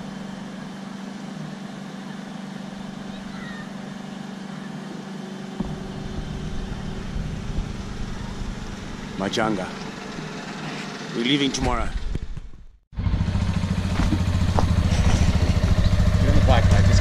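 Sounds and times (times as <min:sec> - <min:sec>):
vehicles passing: 0:00.0 - 0:12.4, 0:13.0 - 0:17.0
traffic rumble and knocks: 0:05.0 - 0:17.0.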